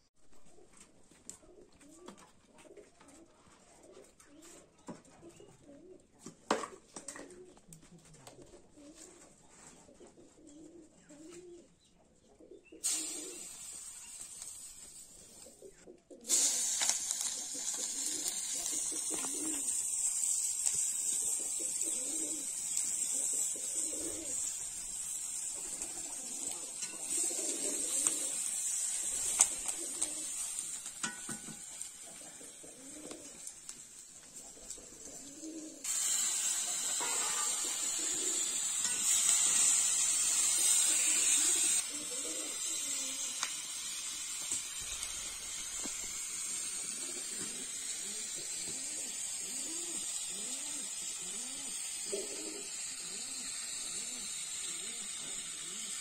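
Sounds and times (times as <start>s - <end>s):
pigeons cooing: 0.3s - 13.6s, 15.2s - 16.4s, 17.1s - 33.6s, 34.2s - 44.0s, 44.8s - 56.0s
oil sizzling in a wok: 12.8s - 15.5s, 16.3s - 56.0s.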